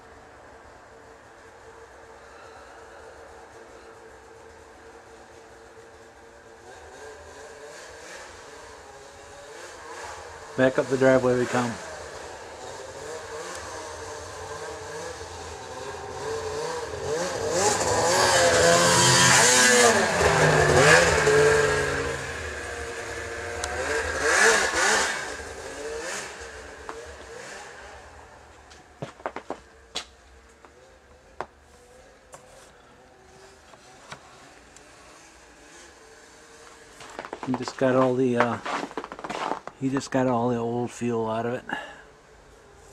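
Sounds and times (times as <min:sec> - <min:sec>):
snowmobile engine revving: 0:06.5 - 0:28.5, 0:32.7 - 0:40.6.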